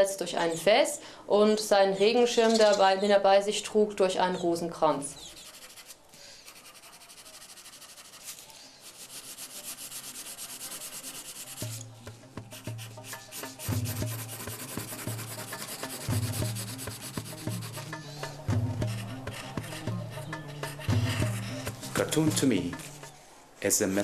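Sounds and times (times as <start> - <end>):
pencil scratching on paper: 0.3 - 0.9, 5.2 - 11.9, 12.5 - 23.1.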